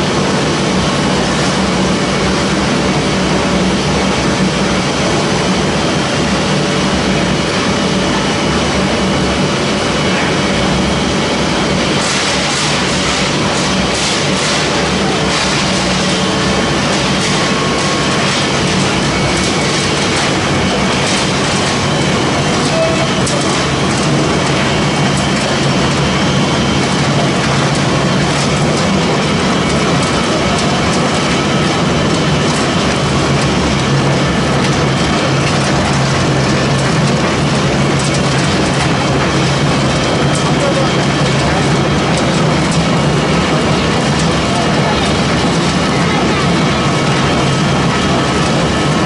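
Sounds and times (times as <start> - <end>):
machine running with low hum: 0.0 - 49.0.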